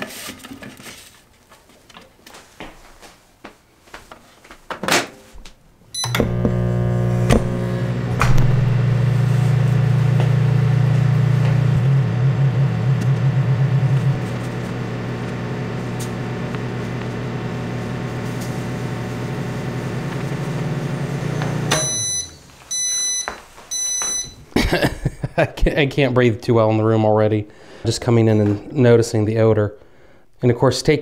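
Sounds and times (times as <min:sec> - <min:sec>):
short high beeps: 0:06.0 - 0:06.2, 0:21.7 - 0:24.4
microwave oven humming: 0:06.0 - 0:24.4.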